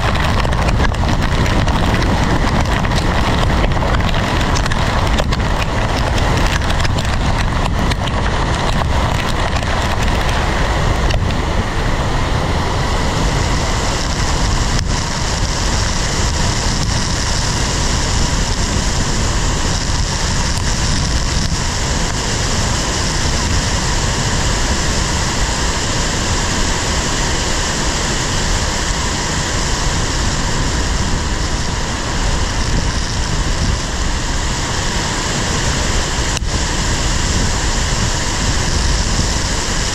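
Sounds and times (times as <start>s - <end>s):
sharp hail hits: 0.0s - 11.3s
wind driving rain against car: 0.0s - 39.9s.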